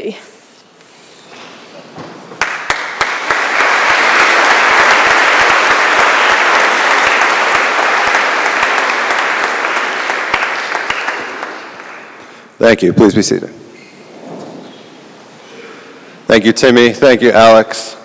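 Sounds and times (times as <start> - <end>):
audience applauding: 2.3 - 12.5.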